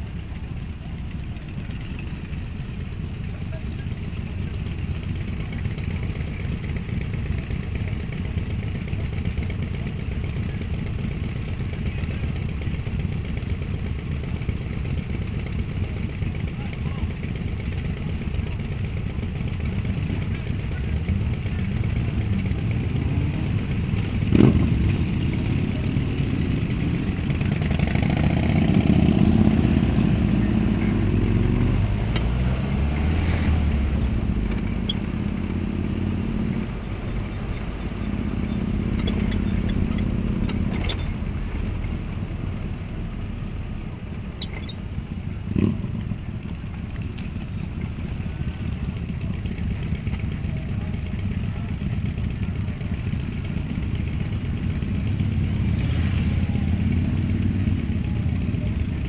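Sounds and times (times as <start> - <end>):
motorcycles riding past: 15.9 - 42.1, 45.3 - 59.0.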